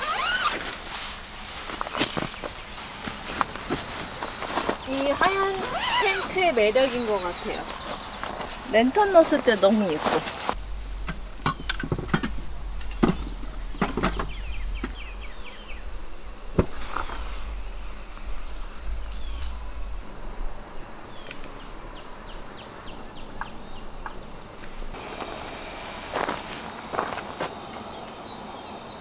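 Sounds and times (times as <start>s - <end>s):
insects trilling: 0.0s - 29.0s
camp gear clicking and knocking: 10.3s - 15.1s.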